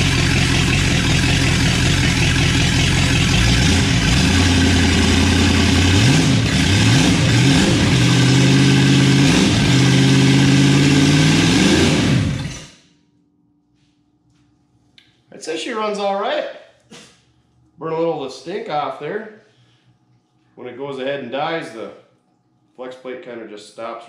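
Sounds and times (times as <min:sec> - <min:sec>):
engine revving: 0:00.0 - 0:12.8.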